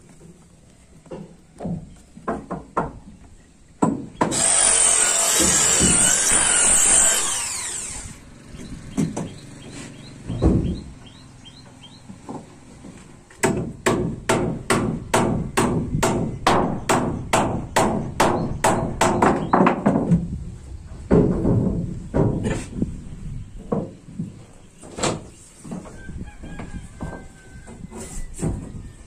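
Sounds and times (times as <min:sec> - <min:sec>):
hammer driving nails into wood: 0:03.8 - 0:07.3
power saw whine: 0:04.3 - 0:08.7.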